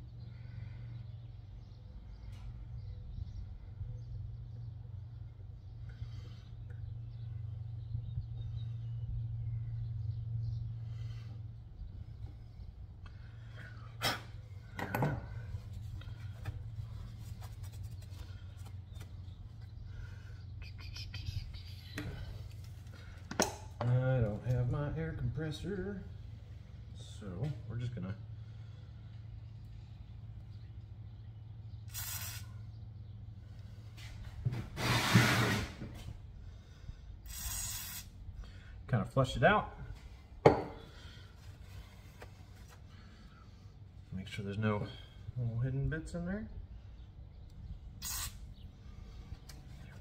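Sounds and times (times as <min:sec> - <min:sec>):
steady low hum: 0:00.0 - 0:50.0
aerosol can spraying: 0:31.9 - 0:32.5, 0:37.3 - 0:38.1, 0:48.0 - 0:48.4.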